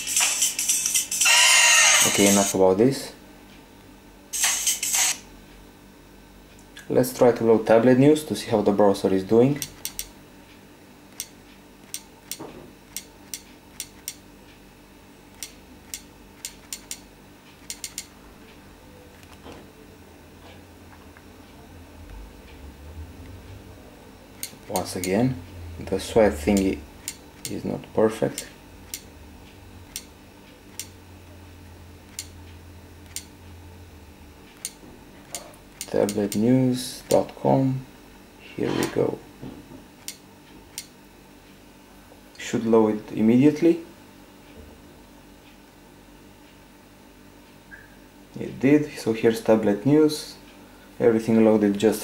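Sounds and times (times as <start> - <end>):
faint low hum: 6.4 - 40.9.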